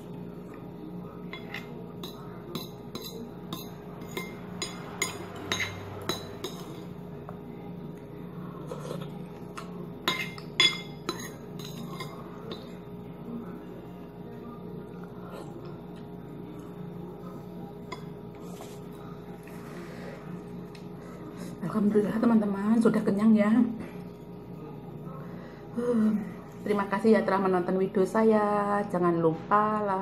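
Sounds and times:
steady low hum: 0.0s - 30.0s
spoon clinking against ceramic bowl: 1.3s - 6.8s, 10.0s - 12.7s.

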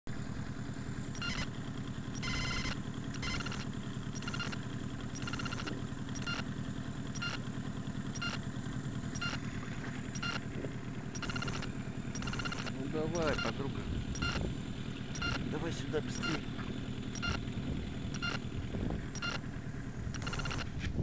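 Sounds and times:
outboard motor running: 0.1s - 21.0s
high-pitched repeating sound: 2.2s - 3.6s, 5.2s - 6.4s, 11.2s - 13.6s, 14.2s - 14.4s, 15.2s - 15.4s.

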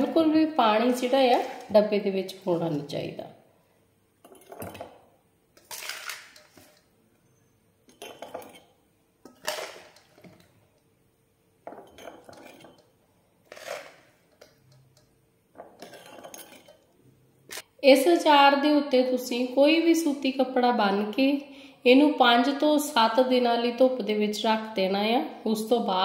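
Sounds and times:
spoon scraping a steel bowl: 5.6s - 10.5s, 11.7s - 16.9s.

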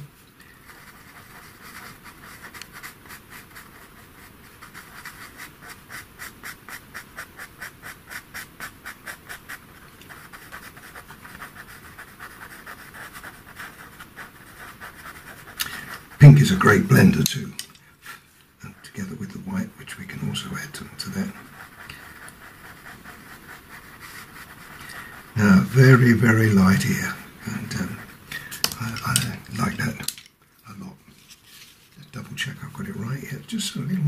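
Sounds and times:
pencil scratching on paper: 0.6s - 17.2s, 19.9s - 30.0s.

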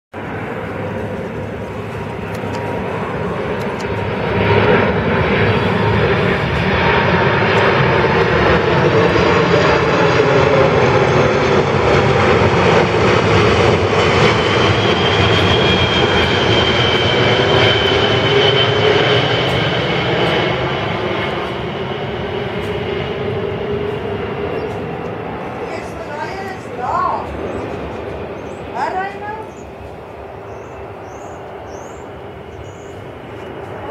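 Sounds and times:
jet aircraft roar: 0.1s - 33.9s
high whine: 0.2s - 33.9s.

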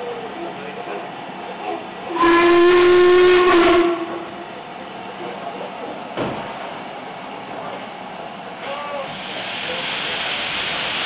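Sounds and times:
steam locomotive whistle: 2.1s - 4.4s
steam hissing: 8.6s - 11.0s.

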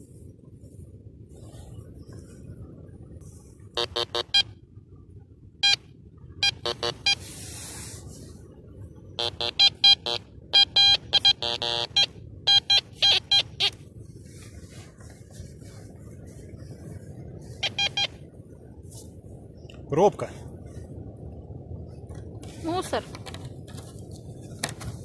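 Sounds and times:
metal detector beeps: 3.8s - 4.5s, 6.4s - 7.2s, 9.2s - 13.8s, 17.6s - 18.2s
sand rustling: 6.8s - 8.5s, 14.0s - 18.0s.

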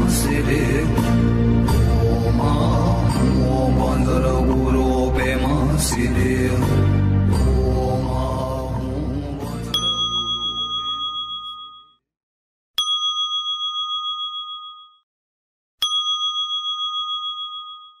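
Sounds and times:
small high-pitched bell ringing: 9.7s - 12.0s, 12.8s - 15.1s, 15.8s - 18.0s.

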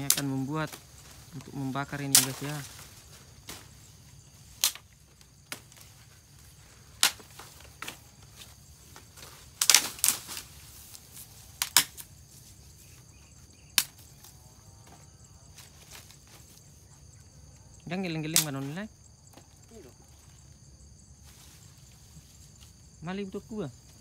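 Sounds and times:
dry sticks snapping: 0.0s - 2.8s, 4.5s - 5.9s, 7.0s - 8.1s, 9.0s - 12.1s, 13.7s - 14.3s, 18.3s - 18.6s.

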